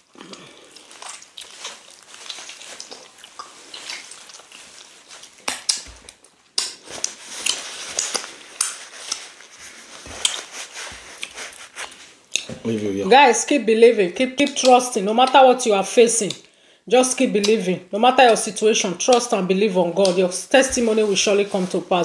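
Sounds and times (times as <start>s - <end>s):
wet chewing and lip smacks: 0.0s - 12.6s.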